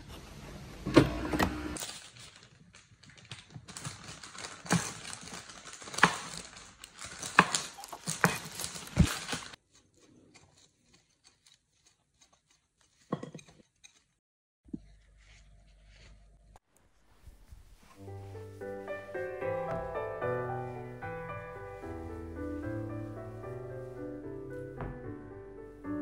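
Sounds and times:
paper rustling: 1.8s - 13.2s
knife scrape: 7.4s - 16.6s.

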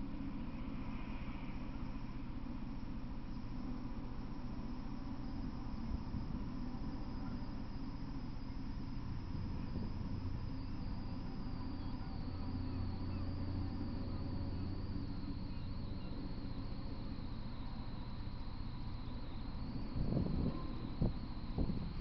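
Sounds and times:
low hum: 0.0s - 22.0s
thin high-pitched whine: 0.0s - 22.0s.

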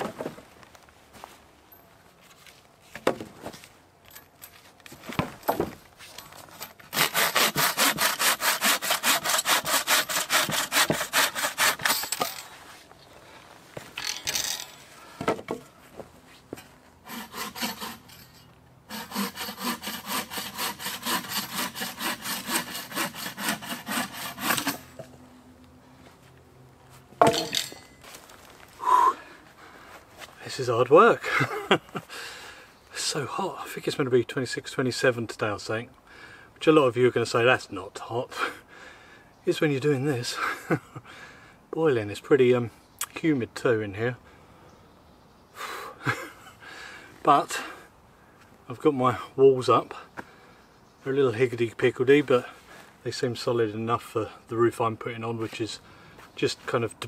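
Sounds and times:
saw cutting wood: 6.8s - 12.2s, 17.0s - 18.3s, 18.9s - 25.0s
wooden poles knocking: 27.2s - 27.8s.

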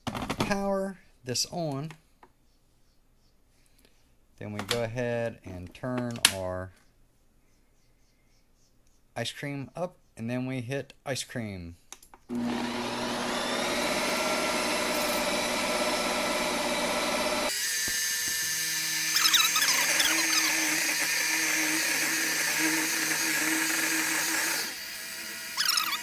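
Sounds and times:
ice cream maker motor whine: 12.3s - 26.0s
squeaky chirps: 19.1s - 20.5s, 25.6s - 26.0s.

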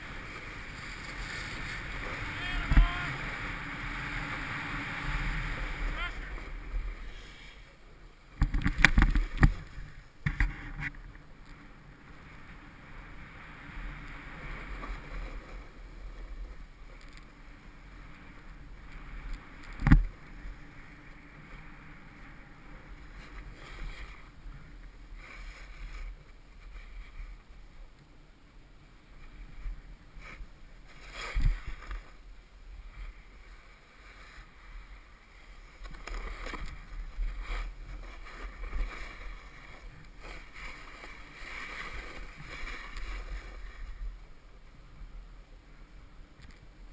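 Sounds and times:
snowboard scraping over snow: 0.0s - 7.8s, 29.1s - 46.0s.

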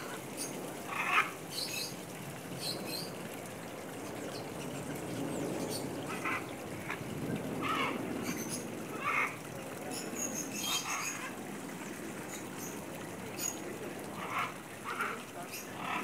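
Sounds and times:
macaws squawking: 7.6s - 8.0s.

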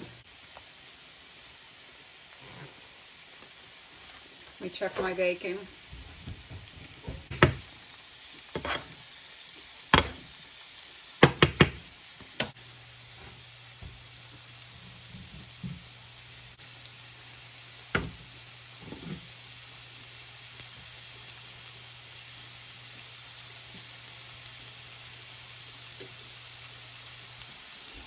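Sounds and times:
potatoes sizzling in a pan: 0.0s - 28.0s
knife striking cutting board: 10.0s - 10.2s.

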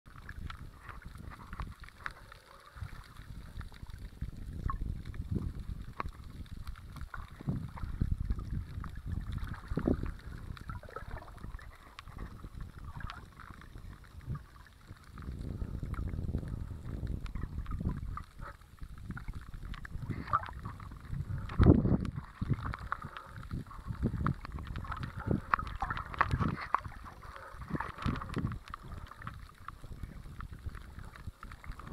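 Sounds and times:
muffled underwater sea water rumble: 0.1s - 31.9s
underwater knocks and thumps: 0.1s - 31.9s.

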